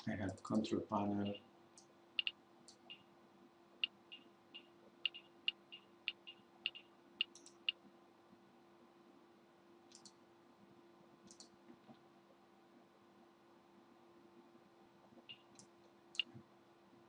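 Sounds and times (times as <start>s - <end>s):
computer mouse button clicking: 9.9s - 10.2s.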